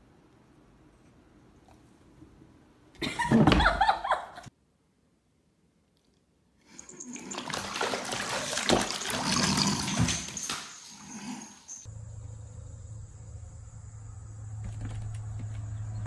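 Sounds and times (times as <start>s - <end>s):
cat splashing in bathtub water: 6.8s - 10.6s
steady low hum: 11.9s - 16.0s.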